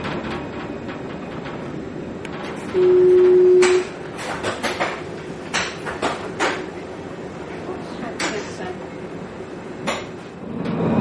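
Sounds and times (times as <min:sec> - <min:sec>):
sliding doors clicking and knocking: 0:00.0 - 0:07.0, 0:09.8 - 0:10.9
tram running rumble: 0:00.0 - 0:11.0
electronic door beep: 0:02.8 - 0:03.9.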